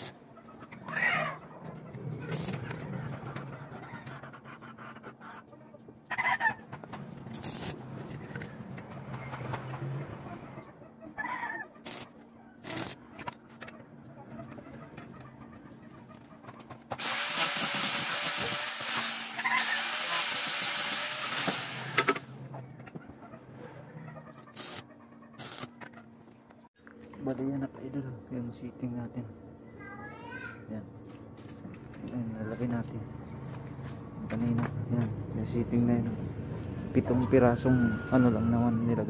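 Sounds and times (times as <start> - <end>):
welding arc crackling: 2.3 - 2.6, 7.3 - 7.8, 11.8 - 13.0, 17.0 - 22.3, 24.5 - 24.8, 25.4 - 25.7.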